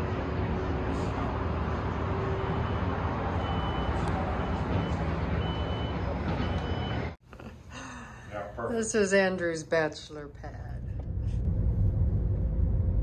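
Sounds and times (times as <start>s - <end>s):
road traffic roar: 0.0s - 7.2s
reversing alarm beeping: 2.4s - 7.2s.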